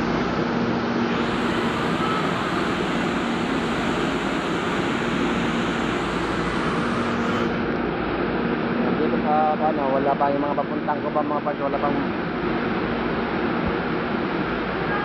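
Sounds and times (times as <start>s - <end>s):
even rushing noise: 0.0s - 9.3s
train equipment hum: 0.0s - 15.0s.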